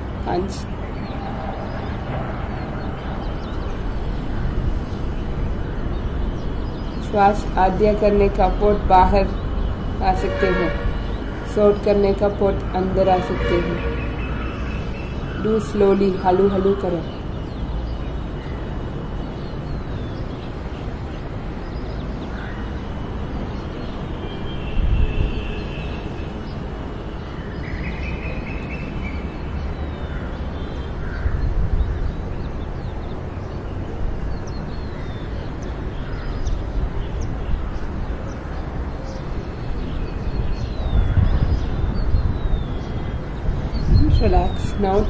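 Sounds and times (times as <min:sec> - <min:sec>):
birds calling: 0:00.0 - 0:45.0
wind rumbling on microphone: 0:00.0 - 0:45.0.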